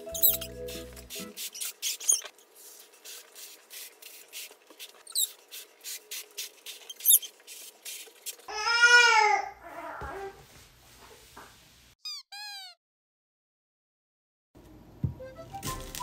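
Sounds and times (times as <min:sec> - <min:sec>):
rubber balloon squeaks: 0:00.1 - 0:00.6, 0:01.3 - 0:02.4, 0:05.0 - 0:05.4, 0:06.9 - 0:07.3, 0:12.0 - 0:12.8
baby crying: 0:08.5 - 0:10.4.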